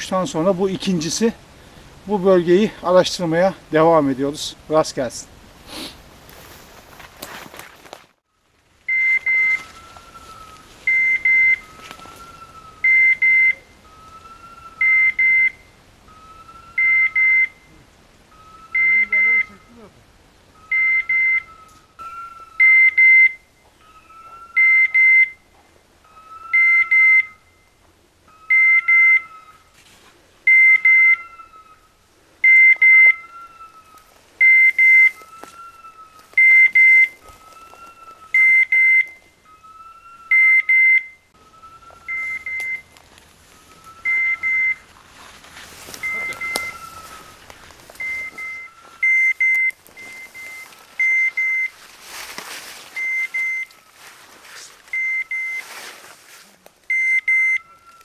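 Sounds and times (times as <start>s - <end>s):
rustling through brush: 5.0s - 15.6s, 29.3s - 39.8s, 41.3s - 58.0s
electronic collar beeps: 8.9s - 9.7s, 10.9s - 11.7s, 12.8s - 13.7s, 14.8s - 16.2s, 16.8s - 17.7s, 18.3s - 19.6s, 20.7s - 23.5s, 24.5s - 25.4s, 26.5s - 27.4s, 28.5s - 29.4s, 30.5s - 31.3s, 32.4s - 33.3s, 34.4s - 35.3s, 36.4s - 37.2s, 38.3s - 39.3s, 40.3s - 41.2s, 42.1s - 42.9s, 44.0s - 44.9s, 46.0s - 47.3s, 48.0s - 51.8s, 53.0s - 53.8s, 54.9s - 55.7s, 56.9s - 57.8s.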